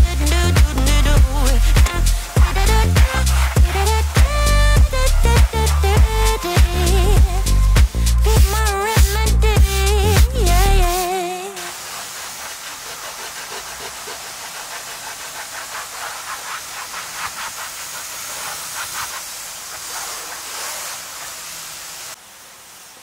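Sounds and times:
towel scrubbing wet floor mat: 0.0 - 7.0, 10.2 - 22.2
steady hiss: 0.0 - 23.0.

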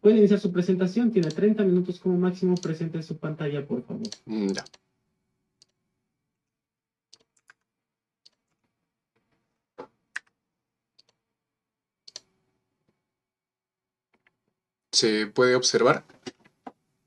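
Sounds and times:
computer input clicks: 1.2 - 1.5, 12.1 - 12.3.

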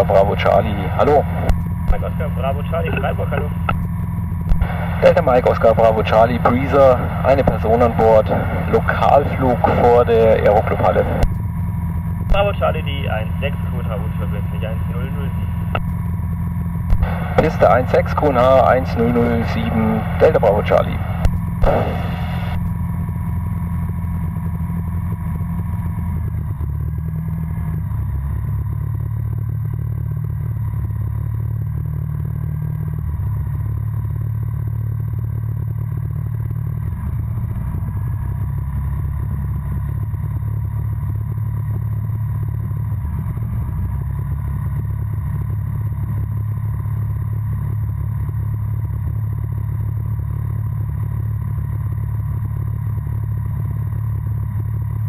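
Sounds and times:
propeller engine droning: 0.0 - 32.4.

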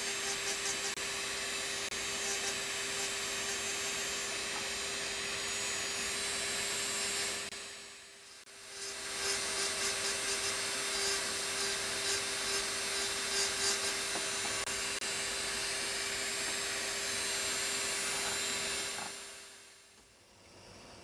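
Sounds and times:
engraving drill grinding glass: 0.0 - 19.7.

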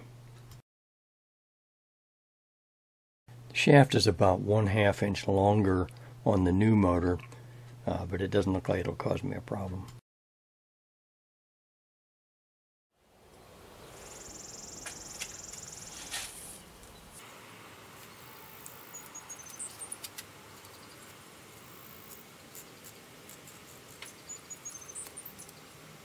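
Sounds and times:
faint outdoor background: 3.3 - 10.0, 12.9 - 26.0
high steady buzz: 14.0 - 26.0.

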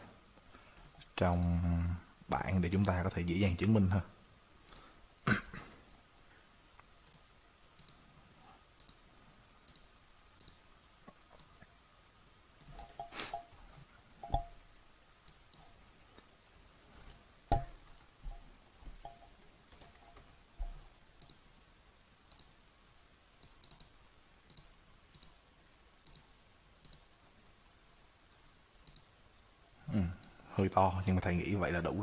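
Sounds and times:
computer mouse clicking: 6.8 - 8.0, 8.8 - 9.0, 9.6 - 11.7, 15.2 - 15.8, 19.1 - 21.4, 22.3 - 22.6, 23.4 - 25.4, 26.0 - 27.1, 28.8 - 29.1.

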